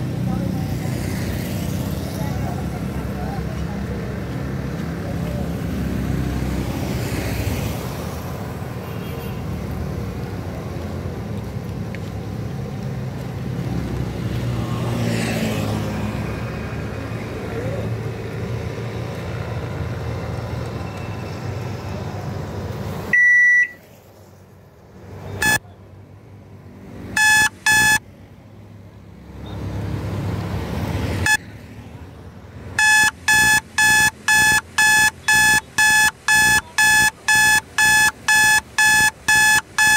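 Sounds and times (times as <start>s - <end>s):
motorcycles passing: 0.0s - 8.8s, 9.5s - 20.6s
street traffic: 0.0s - 39.9s
loud electronic alarm beeping: 27.2s - 28.0s, 32.8s - 39.9s.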